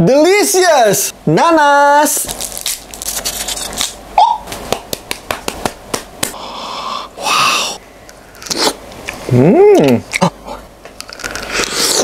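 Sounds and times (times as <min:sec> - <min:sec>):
breathy hiss: 0:06.3 - 0:07.9.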